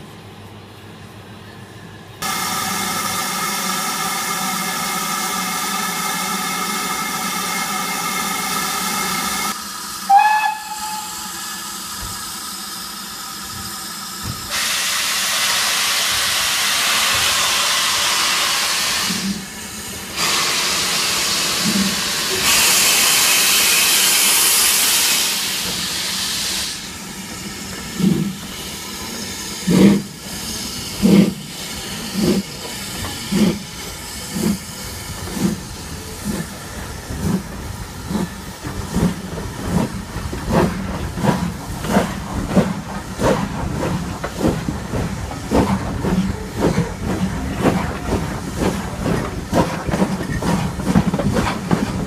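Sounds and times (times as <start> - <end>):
steam hissing: 2.2 - 52.0
steam whistle chord: 10.0 - 11.7.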